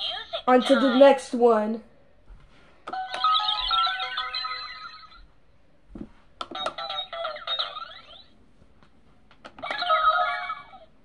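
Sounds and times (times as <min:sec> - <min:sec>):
toy beeping jingle: 0:06.5 - 0:08.3.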